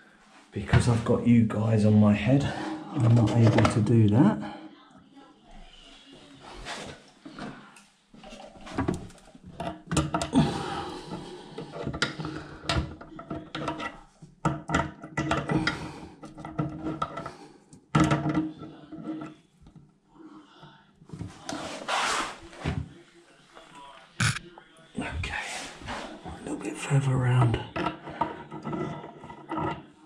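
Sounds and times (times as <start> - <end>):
plastic nut clicking and knocking: 11.6 - 17.3.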